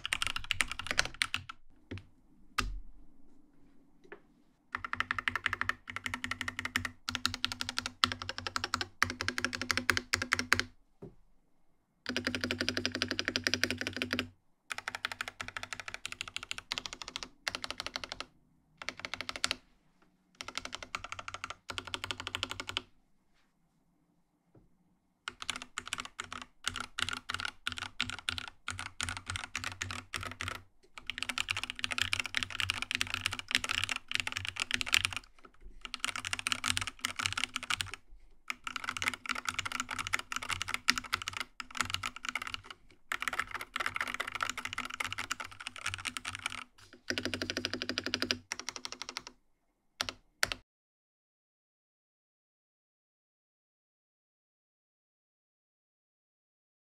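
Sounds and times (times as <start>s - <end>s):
fast typing on mechanical keyboard: 0.0s - 1.6s, 4.8s - 10.7s, 12.1s - 19.6s, 20.4s - 22.8s, 25.3s - 49.3s, 50.0s - 50.6s.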